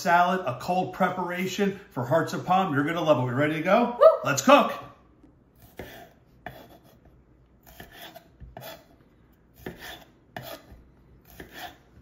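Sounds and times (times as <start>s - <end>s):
knife slicing on a wooden board: 5.6s - 12.0s.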